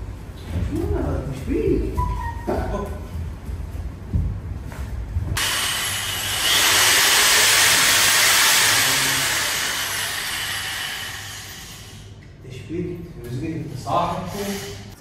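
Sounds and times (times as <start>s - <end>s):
loud hiss of rushing air: 5.4s - 12.1s.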